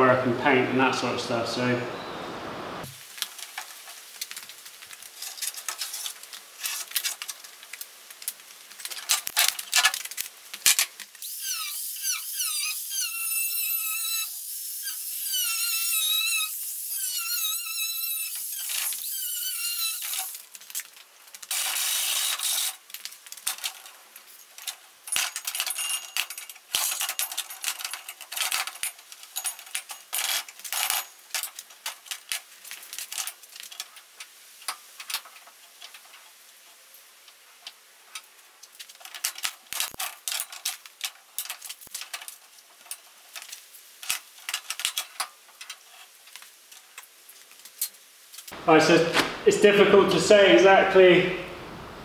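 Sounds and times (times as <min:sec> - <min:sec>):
burst of hissing: 0:11.2 - 0:20.4.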